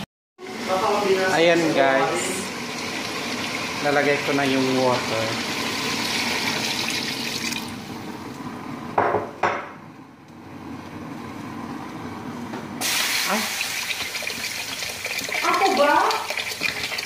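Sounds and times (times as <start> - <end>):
water running and splashing: 0.9 - 7.8, 12.8 - 17.0.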